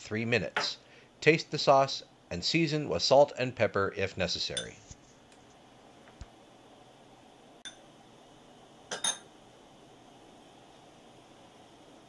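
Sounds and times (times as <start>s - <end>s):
faint steady background hiss: 0.0s - 12.0s
metal spoon clinking on glass bowl: 8.9s - 9.3s.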